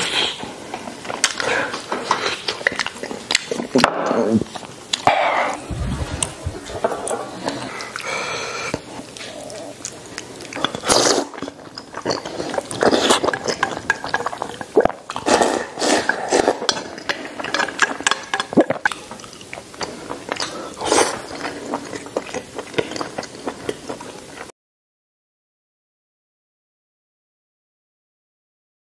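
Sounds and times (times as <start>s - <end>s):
chewing and slurping: 0.0s - 3.8s, 4.5s - 24.5s
wet mouth clicks: 18.4s - 21.2s.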